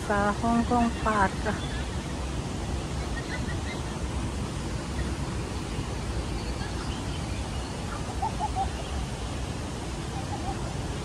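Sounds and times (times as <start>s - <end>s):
rushing background noise: 0.0s - 11.0s.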